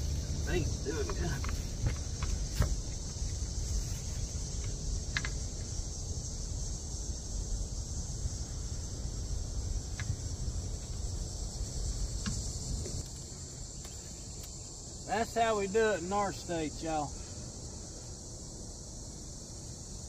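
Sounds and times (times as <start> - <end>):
high-pitched insect chorus: 0.0 - 20.0
faint ticks: 12.2 - 14.6.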